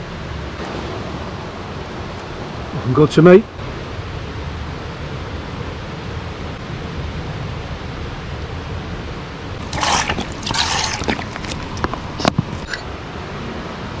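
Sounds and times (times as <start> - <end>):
water poured into metal pot: 9.6 - 12.8.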